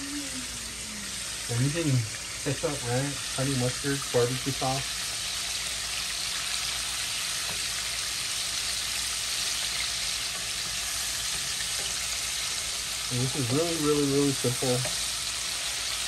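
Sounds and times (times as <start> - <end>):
chicken deep-frying in oil: 0.0 - 16.0.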